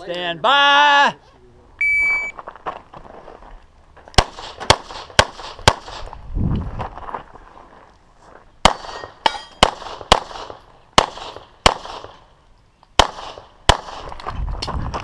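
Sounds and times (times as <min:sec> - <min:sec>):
pistol shots echoing: 0:04.2 - 0:06.0, 0:08.6 - 0:12.2, 0:13.0 - 0:14.1.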